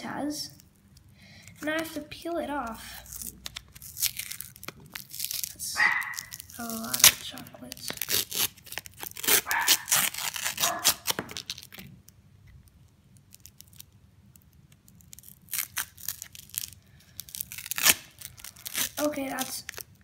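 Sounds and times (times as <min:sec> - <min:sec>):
paper sleeve tearing and crinkling: 0:02.8 - 0:11.8, 0:15.0 - 0:20.0.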